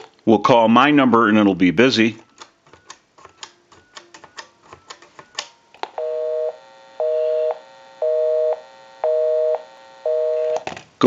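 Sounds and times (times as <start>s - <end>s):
keypad dialing tones and clicks: 2.2s - 10.6s
telephone busy signal: 5.9s - 10.6s.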